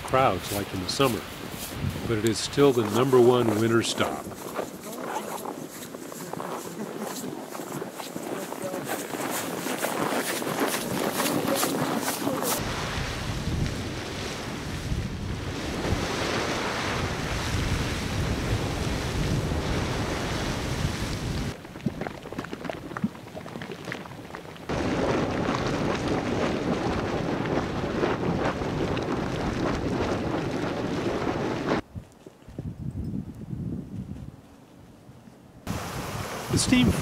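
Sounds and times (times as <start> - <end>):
crackling: 0.0 - 12.6
geysers hissing: 35.7 - 37.0.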